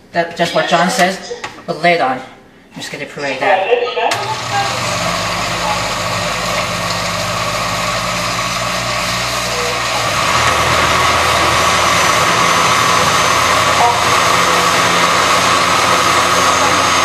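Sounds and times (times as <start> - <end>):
blender motor running: 4.1 - 17.0.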